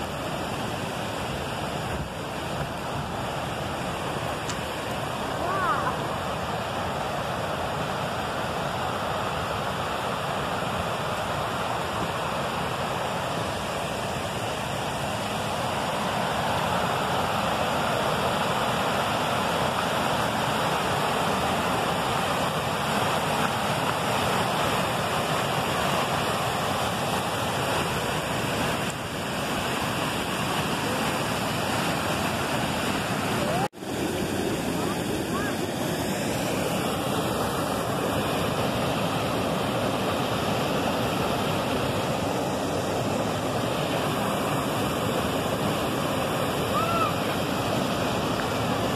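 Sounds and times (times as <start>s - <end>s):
waterfall rushing: 0.0s - 48.9s.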